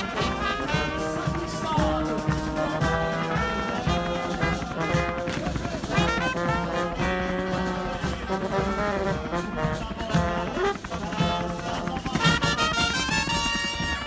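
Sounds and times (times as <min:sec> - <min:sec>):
brass band music: 0:00.0 - 0:14.0.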